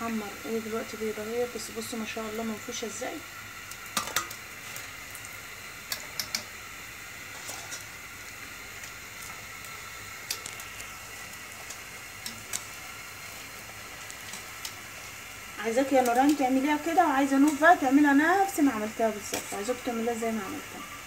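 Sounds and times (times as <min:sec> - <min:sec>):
dough deep-frying in oil: 0:00.0 - 0:21.0.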